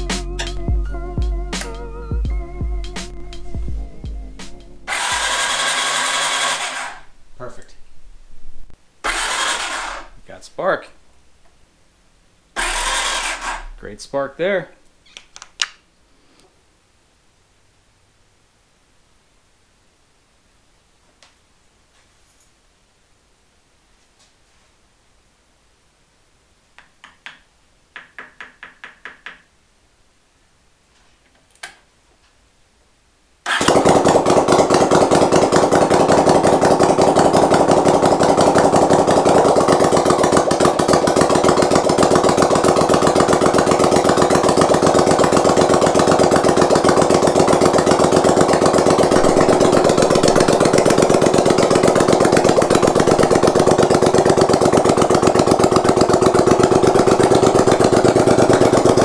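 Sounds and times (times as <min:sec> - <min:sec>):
engine idling: 0:00.0 - 0:07.1, 0:09.0 - 0:10.2, 0:12.6 - 0:13.8, 0:33.5 - 0:59.0.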